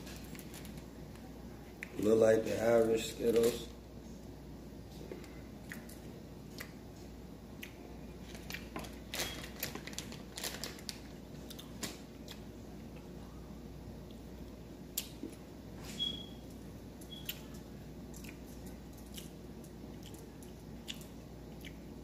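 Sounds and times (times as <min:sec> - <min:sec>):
plastic candy bag crinkling: 0:00.0 - 0:00.9, 0:03.2 - 0:03.7, 0:08.2 - 0:12.0.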